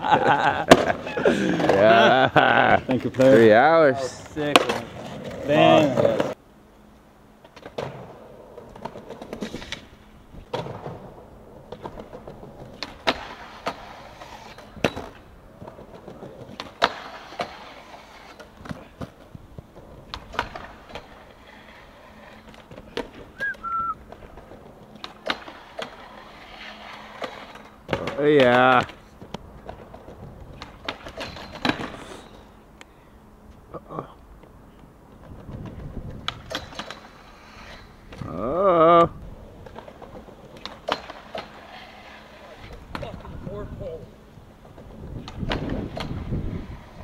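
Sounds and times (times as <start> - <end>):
skateboard wheels rolling on pavement: 0.0 - 47.0
falling whistle-like chirp: 23.4 - 24.0.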